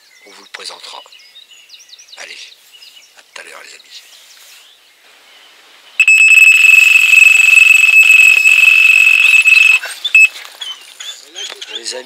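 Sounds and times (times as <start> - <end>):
bite alarm continuous high tone: 6.0 - 10.3
short electronic beep: 6.0 - 10.3.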